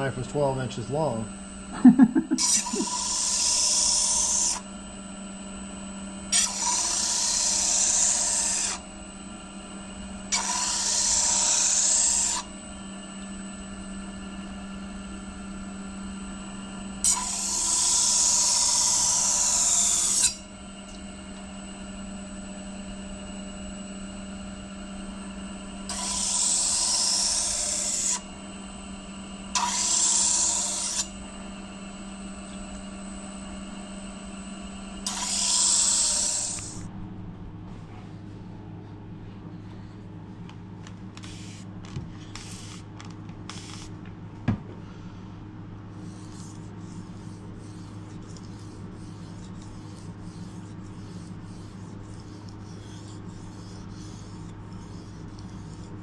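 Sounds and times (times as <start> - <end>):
grinder motor hum: 0.0 - 56.0
knife blade grinding on disc: 1.9 - 4.7, 6.3 - 8.8, 10.2 - 12.6, 17.0 - 21.0, 25.8 - 28.3, 29.5 - 31.2, 35.0 - 36.9, 41.2 - 44.0, 45.9 - 56.0.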